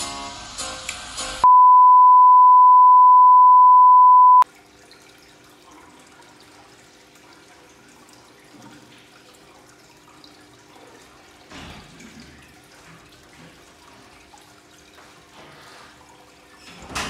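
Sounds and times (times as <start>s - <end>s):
background music: 0.0s - 1.4s
steady test-tone beep: 1.4s - 4.4s.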